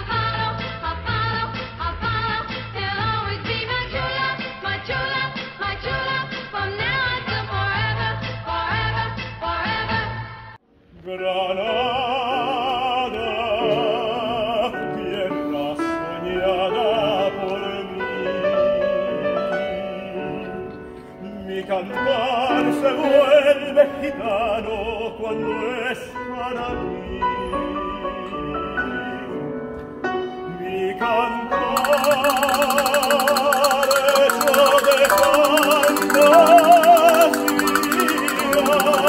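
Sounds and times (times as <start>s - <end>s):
operatic singing with vibrato: 31.6s - 39.0s
piano accompaniment: 31.7s - 39.0s.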